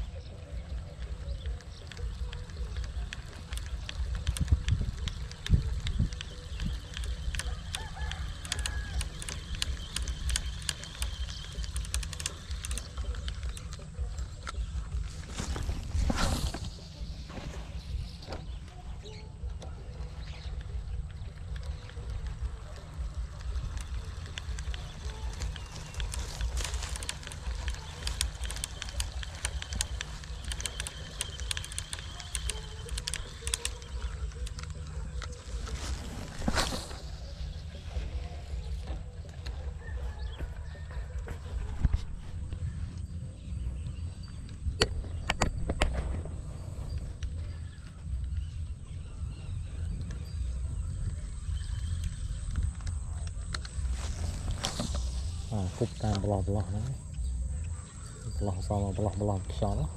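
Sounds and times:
wind rumble on microphone: 0:00.0 - 0:11.8
wind rumbling on microphone: 0:00.0 - 0:59.9
spinning reel clicking: 0:01.3 - 0:15.2, 0:21.3 - 0:36.4
light clicks: 0:19.5 - 0:37.1.

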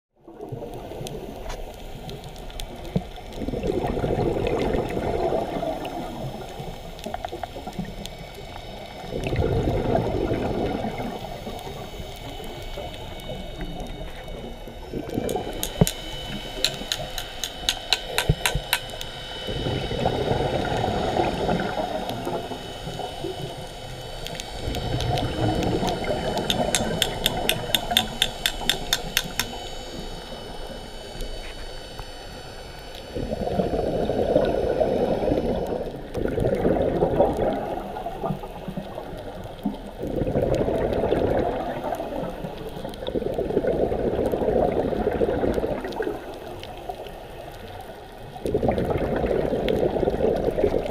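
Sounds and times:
exhaled bubbles underwater: 0:00.2 - 0:17.2, 0:18.0 - 0:50.9
fast-ticking regulator hiss: 0:00.5 - 0:36.4.

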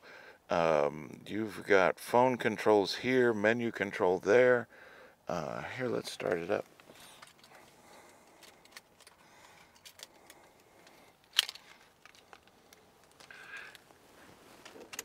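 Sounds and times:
small handling clicks: 0:06.2 - 0:14.0, 0:14.6 - 0:15.0
keys jingling: 0:06.9 - 0:13.8, 0:14.6 - 0:15.0.

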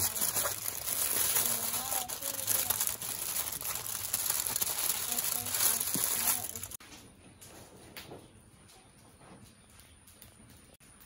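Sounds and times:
aluminium foil crinkling: 0:00.0 - 0:06.8.

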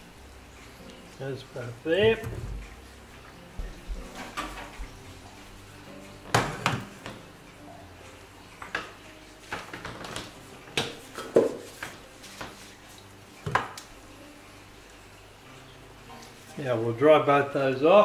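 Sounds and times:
tools knocking on benchtop: 0:10.8 - 0:11.7.

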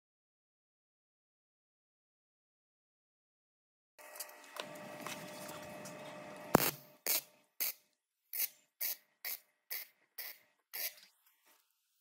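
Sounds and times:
arc welder crackling bursts: 0:06.3 - 0:07.8
welding arc striking crack: 0:06.5 - 0:07.2.

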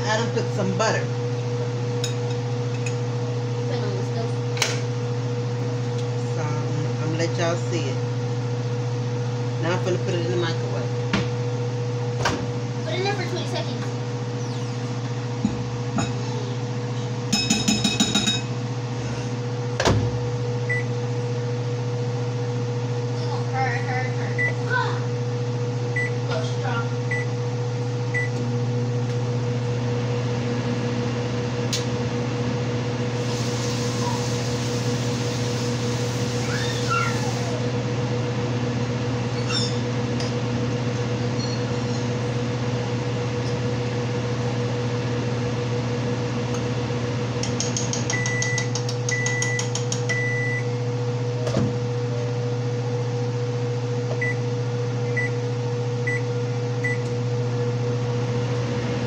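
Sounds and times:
kitchen appliance motor hum: 0:11.8 - 0:19.7, 0:32.9 - 0:44.1.

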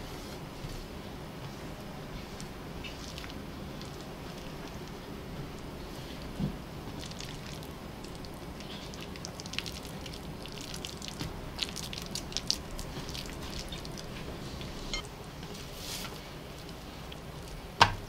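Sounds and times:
steady low hum: 0:00.0 - 0:18.0
sticky dough squelching: 0:02.2 - 0:14.9.

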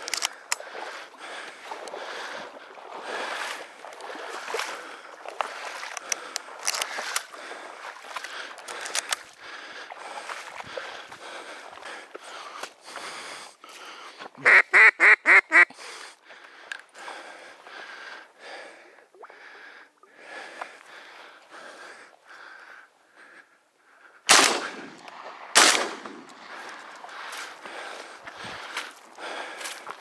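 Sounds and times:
duck quacking: 0:14.4 - 0:15.7
shotgun shots: 0:24.3 - 0:26.5.

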